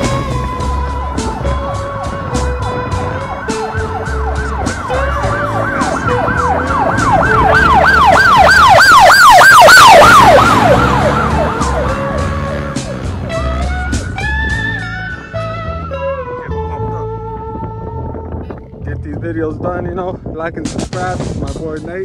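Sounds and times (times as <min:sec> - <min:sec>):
music with drum beat: 0:00.0 - 0:15.2
siren wailing: 0:00.0 - 0:15.9.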